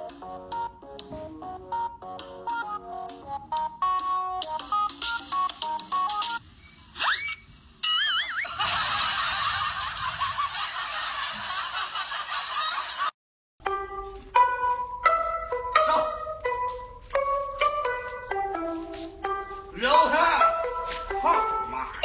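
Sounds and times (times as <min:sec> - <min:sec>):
cartoon whistle rising and falling: 0:07.0 - 0:08.5.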